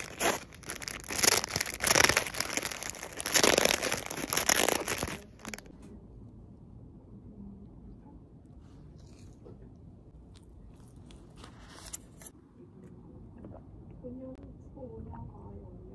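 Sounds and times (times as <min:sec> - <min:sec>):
plastic wrapper crinkling: 0:00.0 - 0:05.7.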